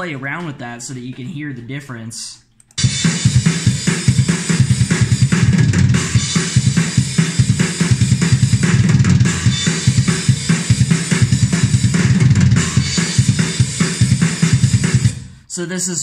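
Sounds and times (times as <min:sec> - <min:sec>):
snare drum: 0:02.8 - 0:15.1
fast kick drum: 0:02.8 - 0:15.3.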